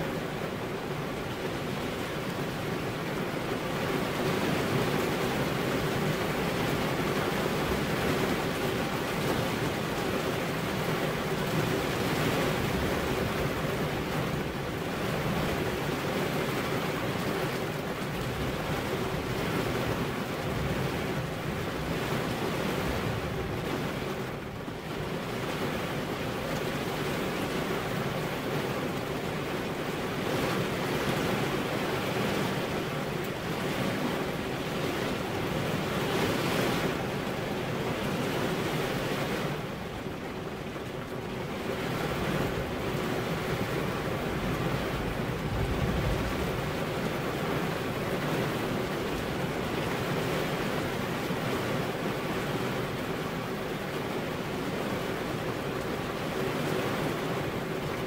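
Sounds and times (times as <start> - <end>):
heavy rain falling: 0.0 - 58.0.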